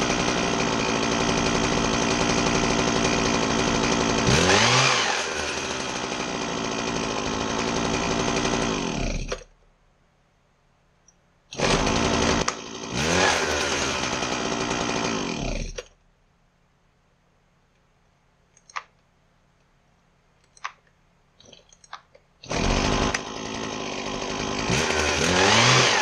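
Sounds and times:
hedge trimmer engine revving: 0.0 - 9.4, 11.5 - 15.8, 22.4 - 26.0.

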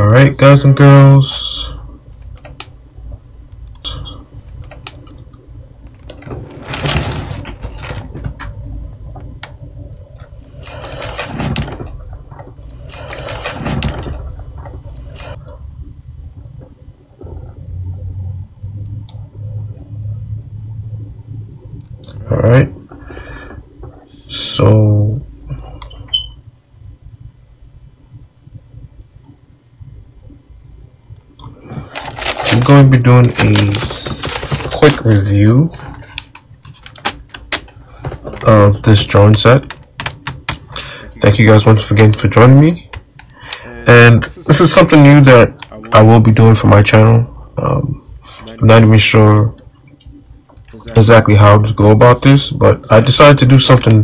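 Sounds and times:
low steady rumble: 0.0 - 54.0
faint clicks: 2.2 - 6.3.

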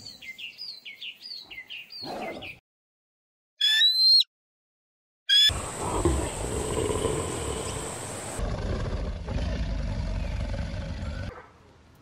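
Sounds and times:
eagle call: 5.3 - 5.5
lions growling: 5.5 - 11.3.

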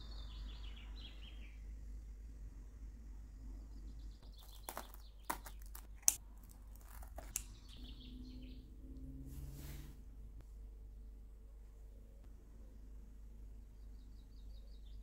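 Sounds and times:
faint bird chirps: 0.0 - 1.7
scissors cutting pizza crust: 4.4 - 7.6.

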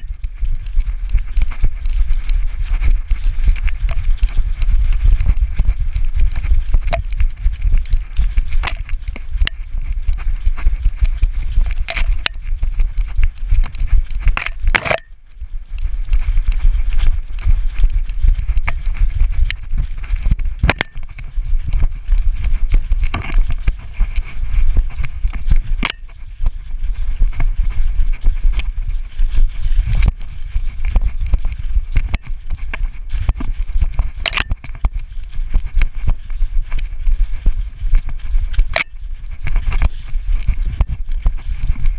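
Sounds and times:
jolting low rumble: 0.0 - 41.9
pounding paws on leaf litter: 0.0 - 41.9.

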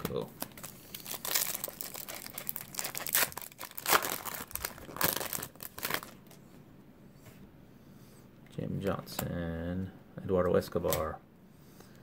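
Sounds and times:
wrapper tearing and crinkling: 0.4 - 6.4.

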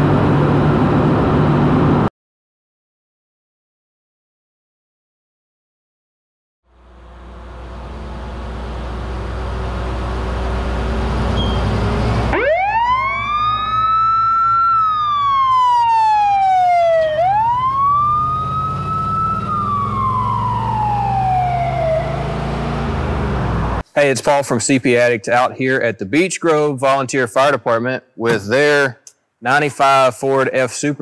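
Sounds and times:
truck engine rumbling: 0.0 - 2.1, 6.7 - 23.8
siren wailing: 11.5 - 23.8.

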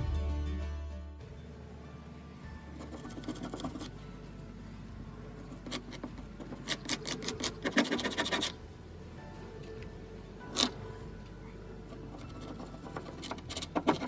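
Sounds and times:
putty knife scraping painted wood: 5.6 - 8.6, 12.1 - 14.0.

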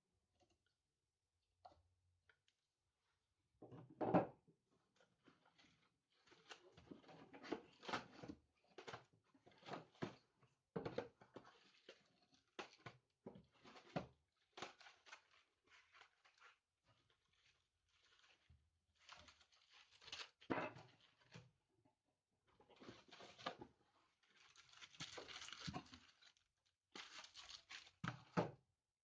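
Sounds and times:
cardboard and plastic rustling: 13.5 - 21.4, 22.8 - 28.6.

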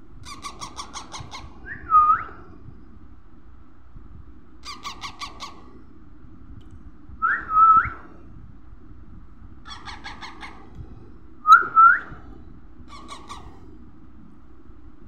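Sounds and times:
parrot squawking: 0.2 - 1.5, 4.6 - 5.6, 9.7 - 10.7, 12.9 - 13.6
parrot chirping: 9.7 - 10.6, 12.9 - 13.4.

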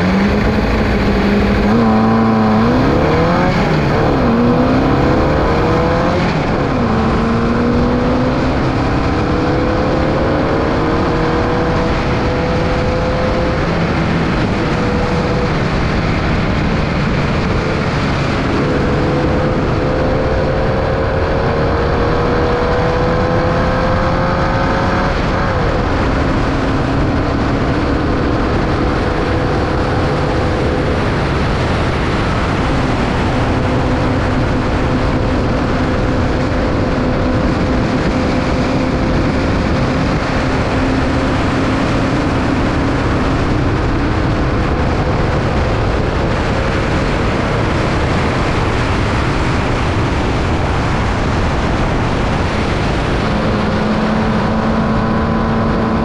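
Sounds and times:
race car engine at high revs: 0.0 - 56.0
wind and road noise: 0.0 - 56.0.

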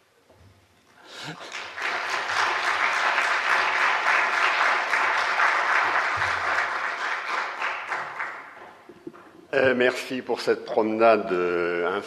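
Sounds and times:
audience applauding: 1.1 - 9.0.

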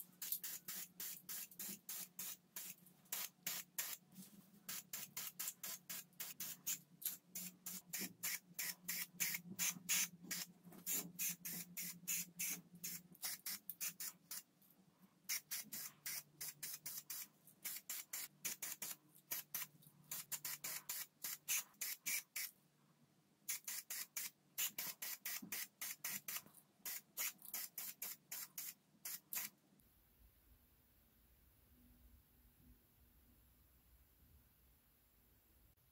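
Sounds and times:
aerosol spray can bursts: 0.2 - 4.0, 4.7 - 6.8, 7.4 - 14.4, 15.3 - 22.5, 23.5 - 29.5.

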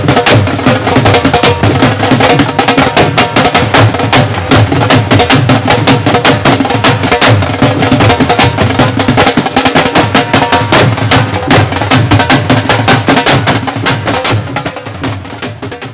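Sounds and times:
drums played with sticks: 0.0 - 15.9.

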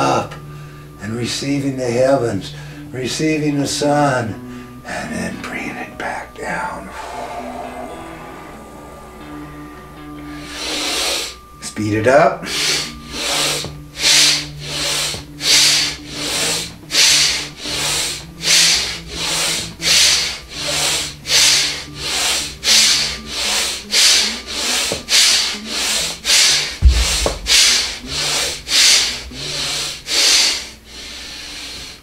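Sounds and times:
low thump: 26.8 - 28.7
man breathing rapidly and forcefully: 26.8 - 32.0.

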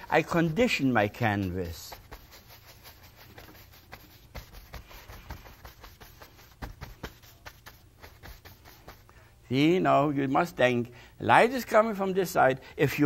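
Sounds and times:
bristle brush scratching canvas: 0.0 - 9.2.

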